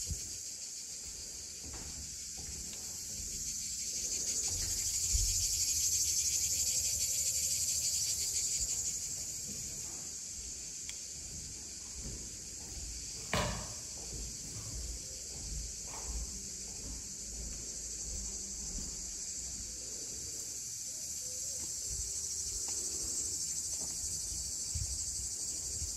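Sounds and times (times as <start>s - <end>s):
cicadas buzzing: 0.0s - 25.9s
sharp knock: 13.3s - 13.8s.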